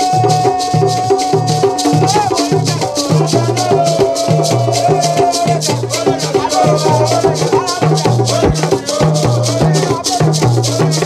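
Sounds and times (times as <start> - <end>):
man holding a long note: 0.0 - 8.6
gourd shaker rattling: 0.0 - 11.0
hand drums: 0.0 - 11.0
men singing: 0.0 - 11.0.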